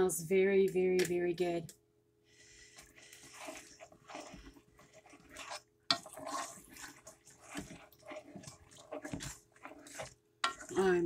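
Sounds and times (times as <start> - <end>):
stirring food in a pot: 2.3 - 11.0.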